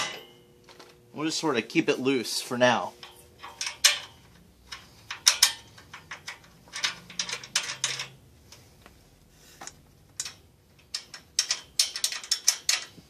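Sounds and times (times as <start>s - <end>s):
metal clicks and scrapes: 3.0s - 8.7s, 9.6s - 13.0s.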